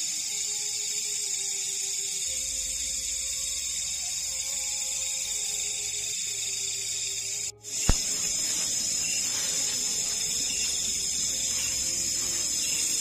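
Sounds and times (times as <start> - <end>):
night insects chorus: 0.0 - 13.0
sharp click: 7.8 - 8.5.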